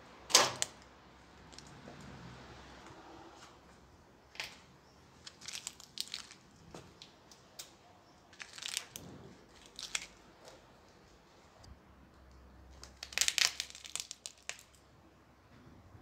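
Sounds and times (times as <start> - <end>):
cardboard matchbox crushed: 8.3 - 10.2, 12.8 - 14.8.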